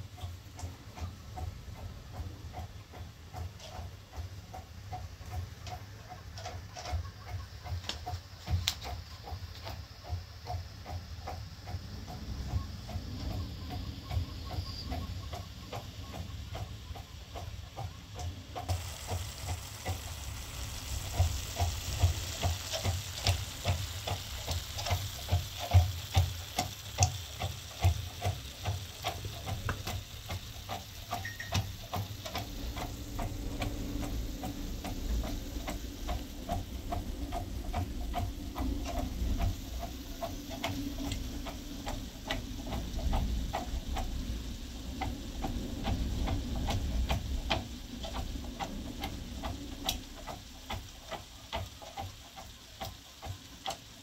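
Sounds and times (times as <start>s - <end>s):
onions sizzling in oil: 18.7s - 46.4s, 49.8s - 53.9s.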